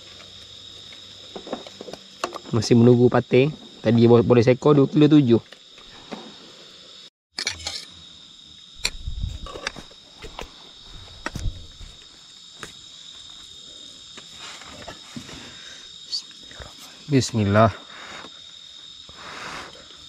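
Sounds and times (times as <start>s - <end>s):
night insects calling: 0.0s - 20.0s.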